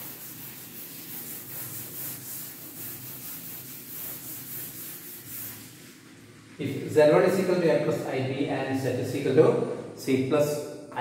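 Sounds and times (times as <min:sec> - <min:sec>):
duster wiping blackboard: 0:00.0 - 0:07.6.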